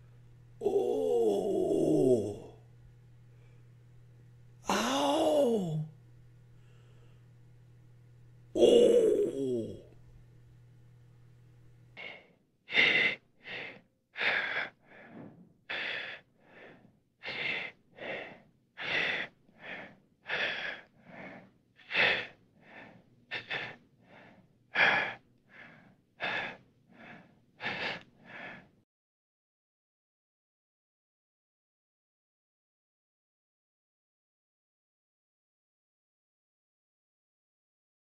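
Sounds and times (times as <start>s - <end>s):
laboured gasping breathing: 4.7s - 5.9s, 12.0s - 28.7s.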